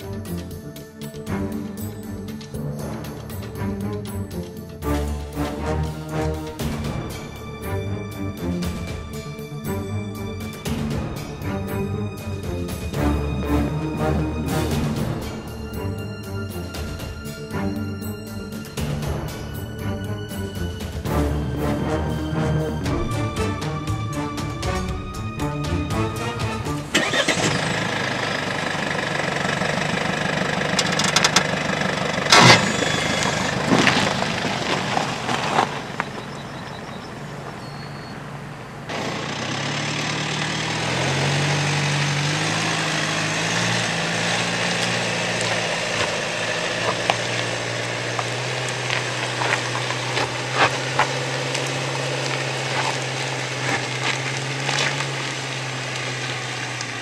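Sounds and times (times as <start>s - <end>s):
car engine droning under load: 0.0s - 57.0s
stones crackling under tyres: 26.9s - 57.0s.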